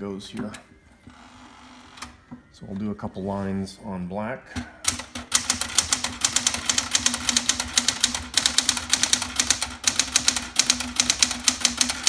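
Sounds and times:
typewriter keys clicking: 4.8s - 12.0s.

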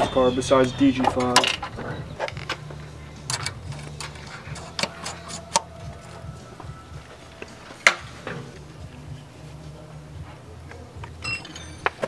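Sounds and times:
low hum: 0.0s - 11.2s
metallic clicks and knocks of tools: 3.2s - 5.7s.

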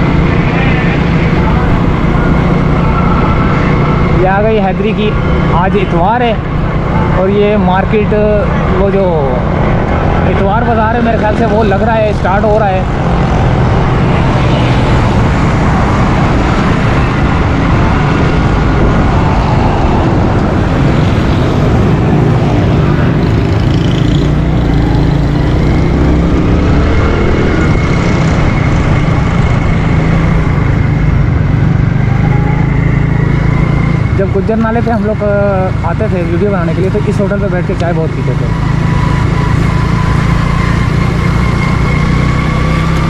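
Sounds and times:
wind and road noise: 0.0s - 43.0s.

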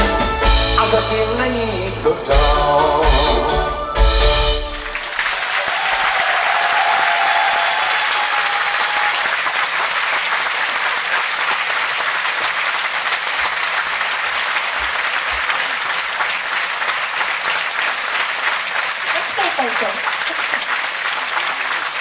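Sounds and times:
audience applauding: 4.6s - 22.0s.

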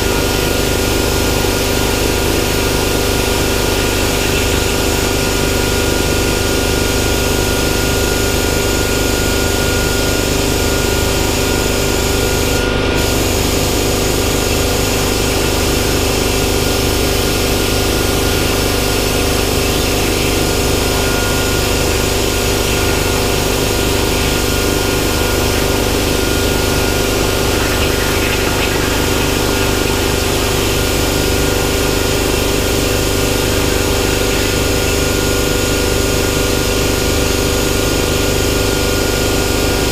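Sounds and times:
constant machine hum: 0.0s - 39.9s
plasma cutter arc hissing: 11.4s - 36.7s.

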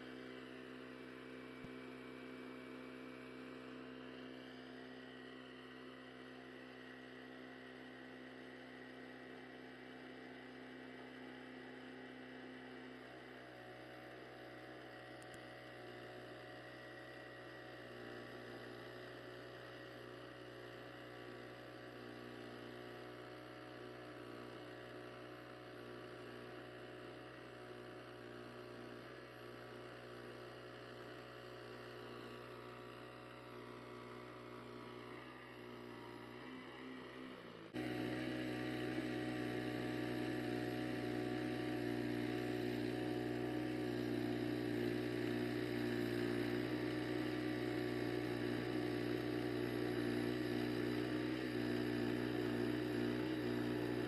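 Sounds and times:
sawmill engine humming: 31.6s - 54.0s.

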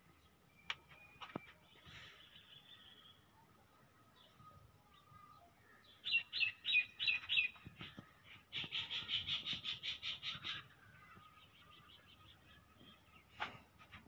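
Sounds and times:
bird chirping: 0.0s - 14.0s.

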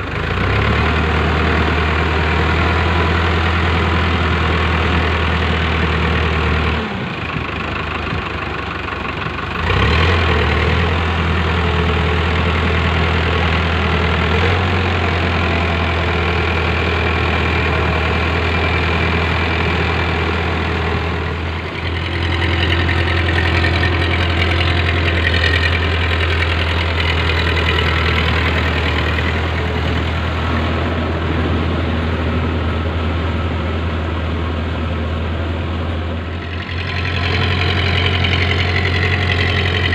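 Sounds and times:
tractor diesel engine running: 0.0s - 39.9s
rotavator churning mud: 21.5s - 33.2s.

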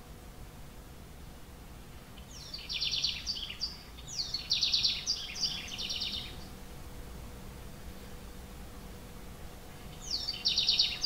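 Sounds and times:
wren singing trills: 2.2s - 6.6s, 9.7s - 11.0s.

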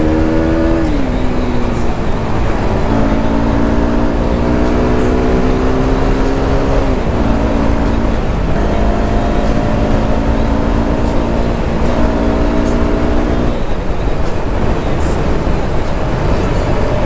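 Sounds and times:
motorcycle engine cruising: 0.0s - 17.0s.

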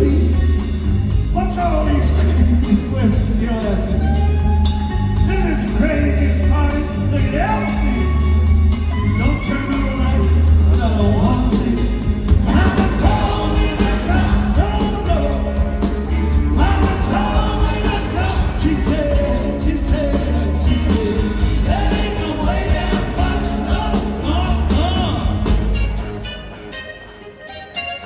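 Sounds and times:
rock band playing live: 0.0s - 28.0s
men singing: 10.8s - 15.7s, 16.5s - 25.4s.

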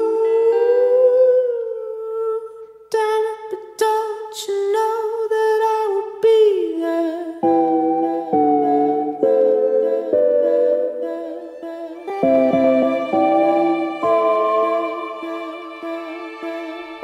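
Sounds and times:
person humming: 0.0s - 2.5s, 6.8s - 17.0s
plucked string notes: 12.1s - 17.0s.

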